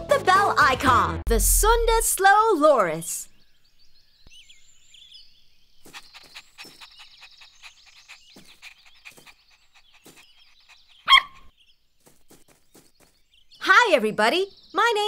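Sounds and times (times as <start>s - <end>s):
faint outdoor chirping: 2.0s - 15.0s
cartoon puppy barking: 11.0s - 11.5s.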